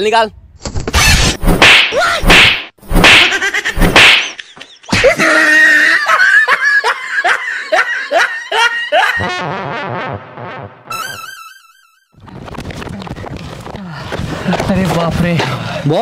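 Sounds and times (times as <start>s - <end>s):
slap or punch hits: 1.4s - 4.4s
person laughing: 3.2s - 9.6s.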